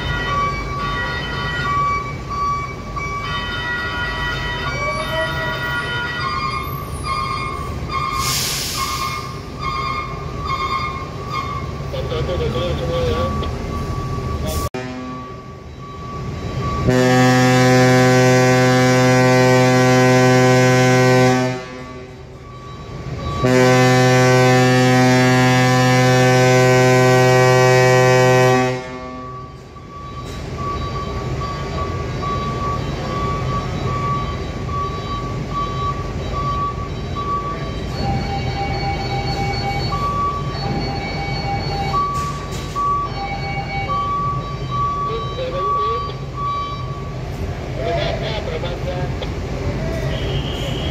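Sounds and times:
truck diesel engine: 0:00.0 - 0:50.9
ship's horn blasts: 0:14.8 - 0:15.4, 0:16.8 - 0:22.3, 0:23.4 - 0:29.4.

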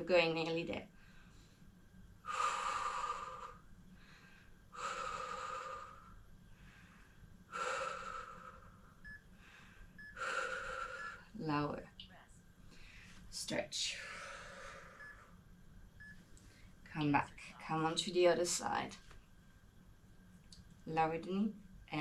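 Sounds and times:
woman breathing out forcefully: 0:02.3 - 0:11.3, 0:14.0 - 0:15.0.

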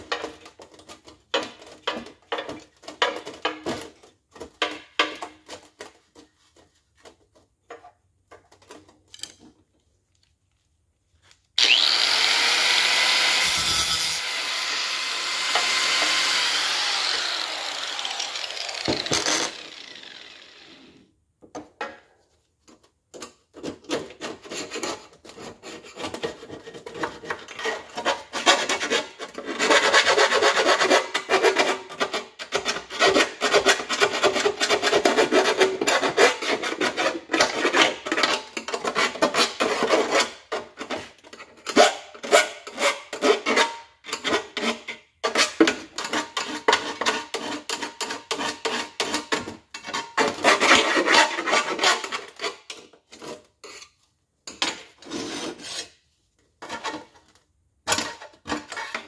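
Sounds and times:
hand tool scraping metal: 0:11.6 - 0:20.8, 0:23.6 - 0:56.0, 0:57.9 - 0:59.0.

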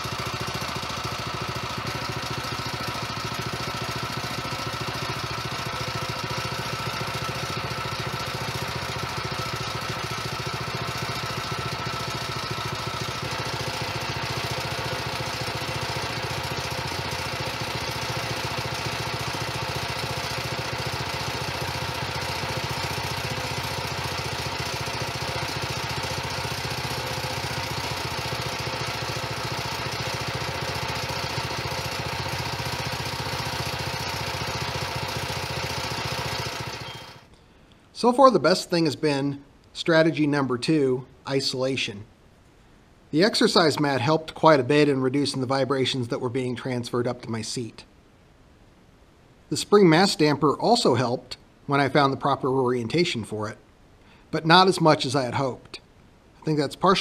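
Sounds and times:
small engine running: 0:00.0 - 0:37.3.

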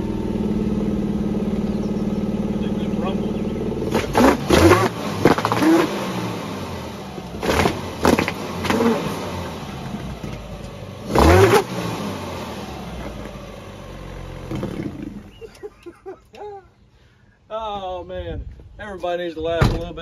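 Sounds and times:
car engine revving: 0:00.0 - 0:15.4.

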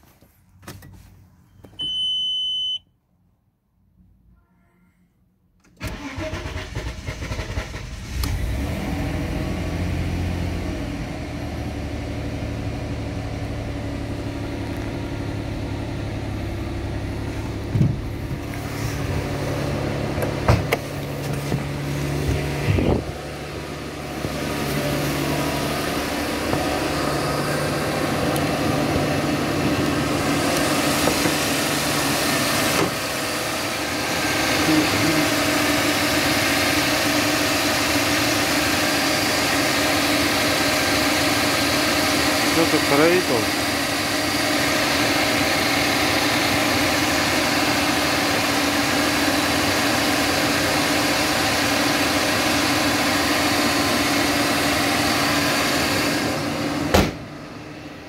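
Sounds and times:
short electronic beep: 0:01.5 - 0:02.9
car engine cranking and starting: 0:05.6 - 0:57.6
car engine idling: 0:05.8 - 0:58.0.

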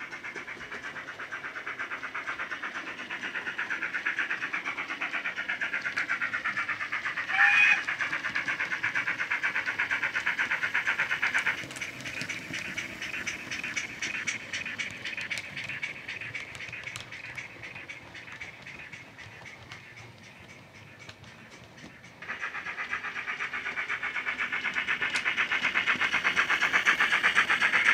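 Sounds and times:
model steam engine chuffing: 0:00.0 - 0:27.9
short train whistle: 0:07.3 - 0:07.8.

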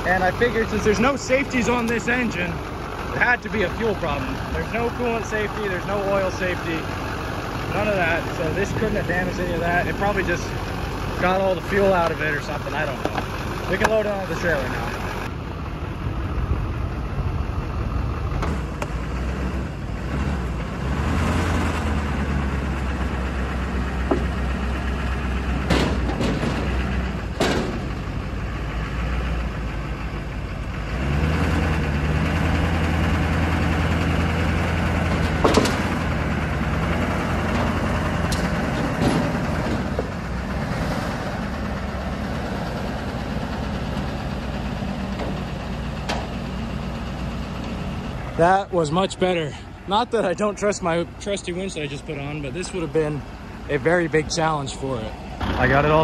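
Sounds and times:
diesel truck engine under load: 0:00.0 - 0:56.0
sharp knocks: 0:25.6 - 0:28.0.

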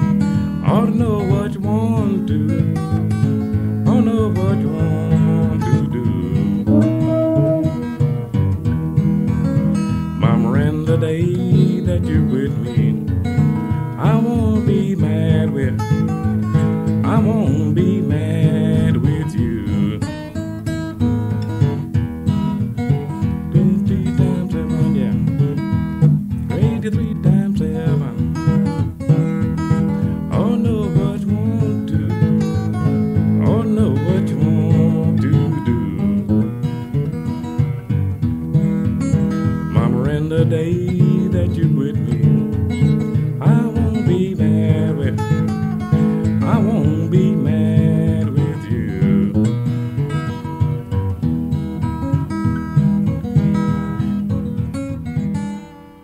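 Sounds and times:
acoustic guitar blues: 0:00.0 - 0:56.0.

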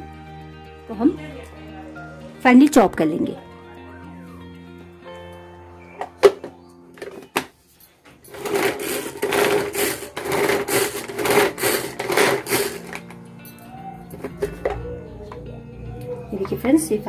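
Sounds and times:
pull-cord food chopper whirring: 0:08.3 - 0:13.2.

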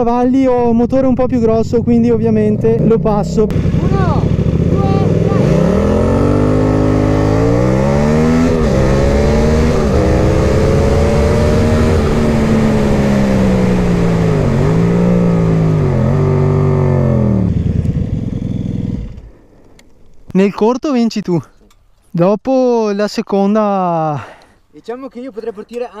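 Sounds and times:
motorcycle engine accelerating: 0:01.2 - 0:19.7.

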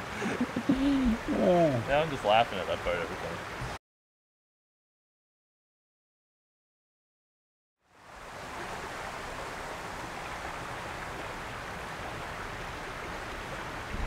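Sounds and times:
creek running over rocks: 0:00.0 - 0:03.8, 0:07.9 - 0:14.0.

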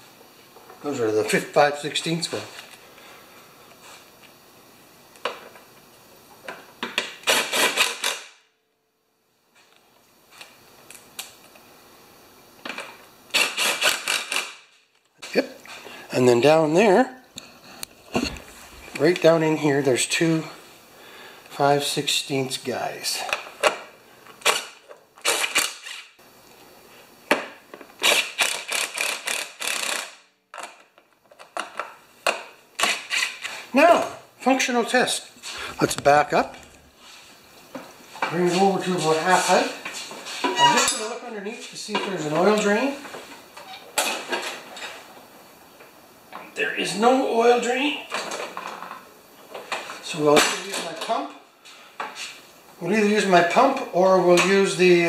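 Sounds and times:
hand ratchet clicking: 0:07.0 - 0:08.3, 0:13.3 - 0:14.6, 0:28.0 - 0:30.8.

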